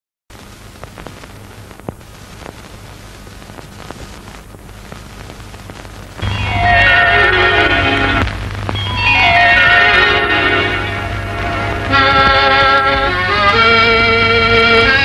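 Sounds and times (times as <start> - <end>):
old film soundtrack hiss and crackles: 0.3 - 15.0
low hum: 4.8 - 14.9
instrumental music: 6.2 - 15.0.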